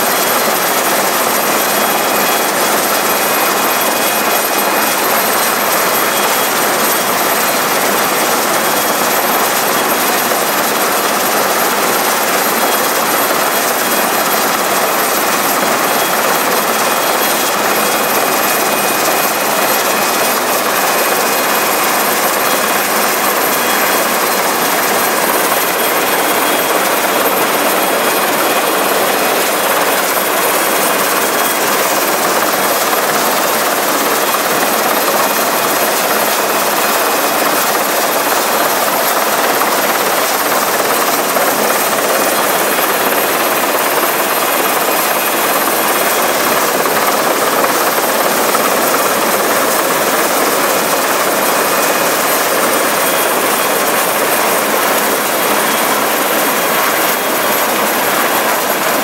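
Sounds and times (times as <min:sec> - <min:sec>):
helicopter rotor and turbine: 0:00.0 - 0:59.0.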